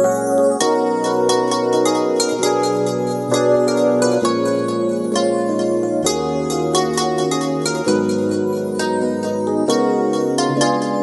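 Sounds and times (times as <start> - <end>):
plucked notes over held chords: 0.0 - 11.0.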